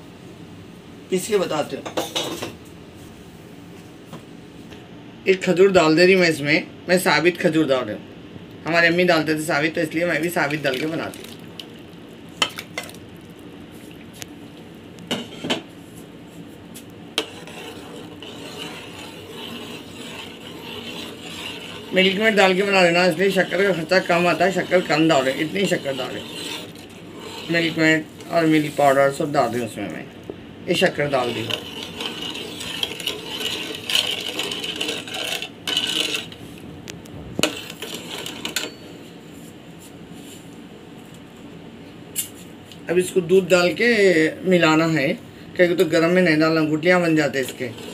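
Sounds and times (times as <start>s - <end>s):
spoon stirring in metal pot: 16.7s - 29.0s, 30.9s - 36.5s, 37.4s - 39.0s, 47.3s - 47.9s.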